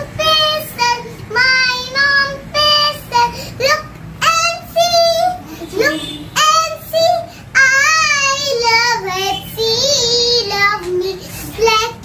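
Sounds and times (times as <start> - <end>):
young girl singing: 0.0 - 12.0
girl breathing: 3.3 - 3.6.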